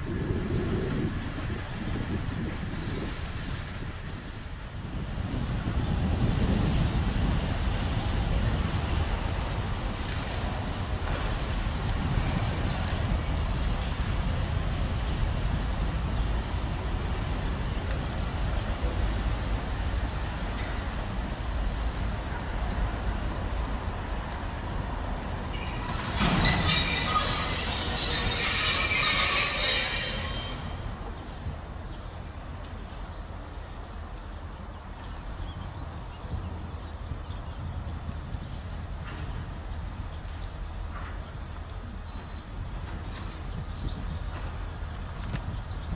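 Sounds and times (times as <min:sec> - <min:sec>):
diesel locomotive engine rumble: 0:00.0 - 0:45.9
train wheels squealing: 0:25.4 - 0:31.3.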